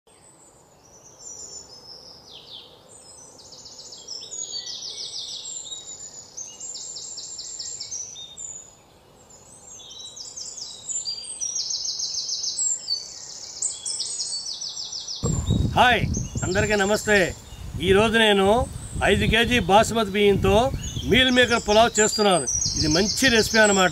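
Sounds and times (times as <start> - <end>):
faint steady hiss: 0.1 - 23.9
small birds chirping and trilling: 0.1 - 23.9.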